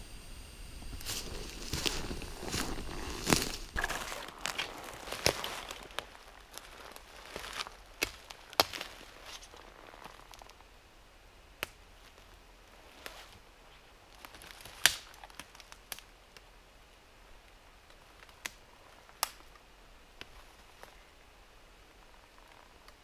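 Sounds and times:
footsteps on dry forest litter: 0:00.8 - 0:10.6
twigs snapping underfoot: 0:00.8 - 0:10.6, 0:14.2 - 0:16.5, 0:18.2 - 0:19.6.

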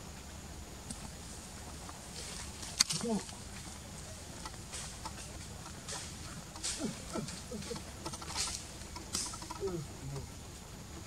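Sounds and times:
low animal calls: 0:02.9 - 0:11.0.

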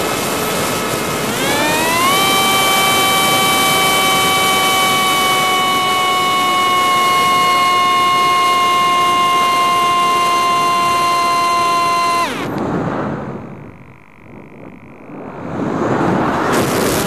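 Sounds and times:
quadcopter motors whining: 0:00.0 - 0:17.0
rush of air: 0:12.5 - 0:17.0.

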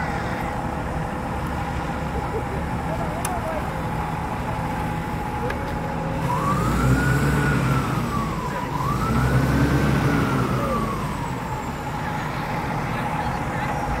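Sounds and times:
engine whine: 0:00.0 - 0:14.0
engine revving: 0:06.2 - 0:11.6.

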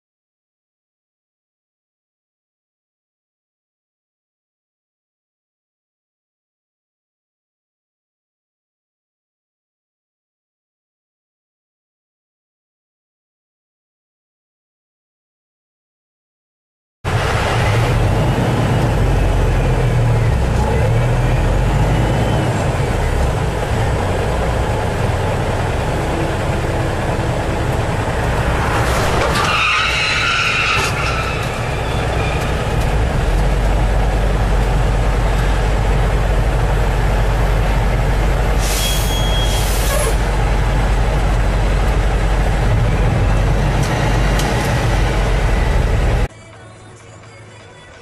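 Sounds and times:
truck engine and road noise: 0:17.1 - 0:48.0
air brake hisses: 0:38.6 - 0:40.2.

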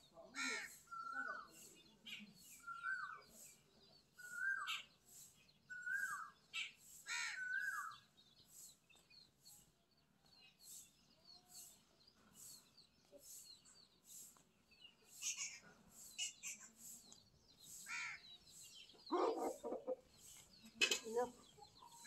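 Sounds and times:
faint bird chirping: 0:00.0 - 0:22.0
short bird calls: 0:04.2 - 0:08.7, 0:12.4 - 0:20.4.

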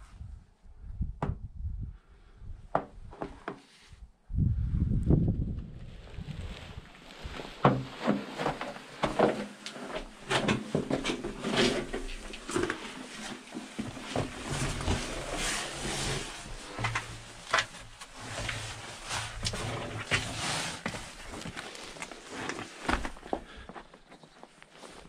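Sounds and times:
rustling background: 0:05.1 - 0:25.0
footsteps scuffing and knocking: 0:07.2 - 0:25.0.

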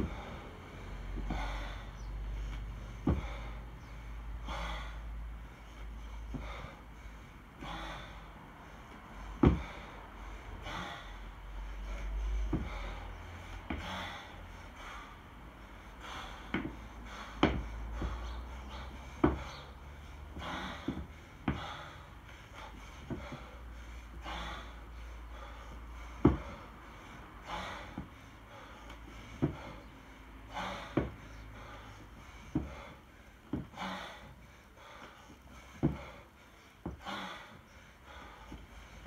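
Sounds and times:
person breathing hard: 0:00.0 - 0:39.0
kettlebell knocks and thuds: 0:03.0 - 0:03.4, 0:09.4 - 0:09.8, 0:12.5 - 0:12.8, 0:17.4 - 0:18.2, 0:19.2 - 0:19.6, 0:20.4 - 0:21.8, 0:26.2 - 0:26.6, 0:29.4 - 0:29.7, 0:30.8 - 0:31.2, 0:35.8 - 0:36.1.

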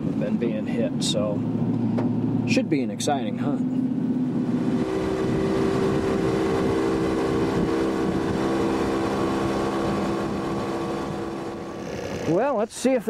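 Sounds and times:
outboard motor running: 0:04.6 - 0:12.5.

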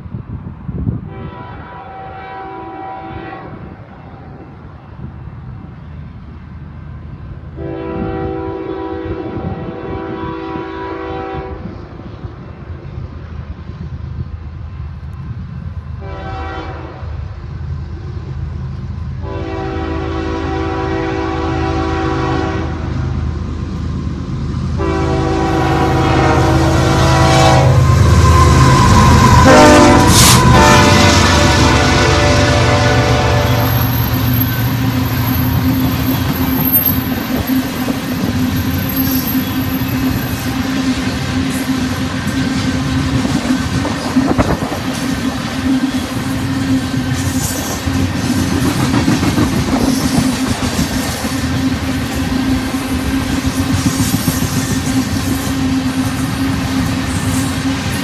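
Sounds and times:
rail noise: 0:00.0 - 0:58.0
locomotive air horn blasts: 0:01.0 - 0:03.7, 0:07.6 - 0:11.7, 0:16.0 - 0:17.2, 0:19.2 - 0:22.9, 0:24.8 - 0:34.8.

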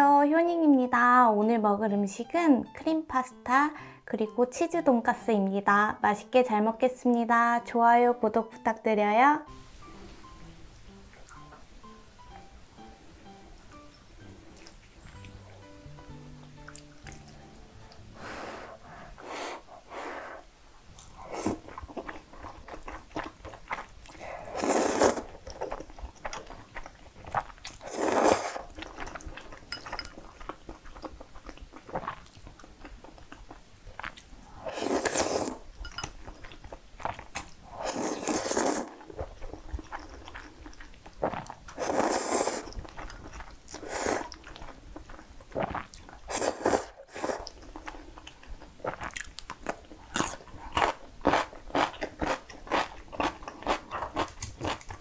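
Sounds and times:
wet chewing and smacking: 0:16.5 - 0:18.0, 0:20.9 - 0:24.2, 0:25.1 - 0:34.4, 0:35.8 - 0:37.6, 0:38.9 - 0:42.0, 0:42.6 - 0:46.3, 0:47.4 - 0:55.0
slurping noodles: 0:21.1 - 0:22.6, 0:24.1 - 0:25.5, 0:27.3 - 0:28.7, 0:34.6 - 0:35.6, 0:37.1 - 0:39.4, 0:41.2 - 0:42.8, 0:43.7 - 0:44.6, 0:45.5 - 0:47.8.

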